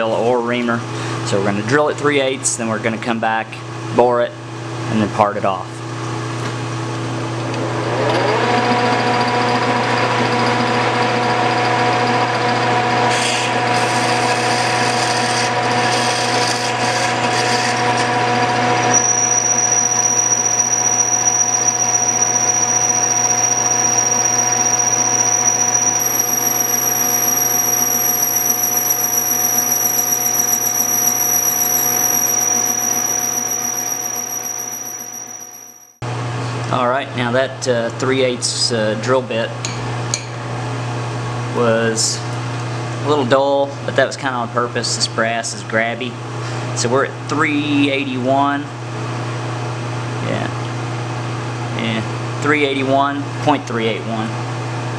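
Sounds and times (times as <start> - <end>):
low machine hum: 18.6 - 35.9
lathe drilling into brass: 18.8 - 35.9
thin high whine: 18.8 - 36.0.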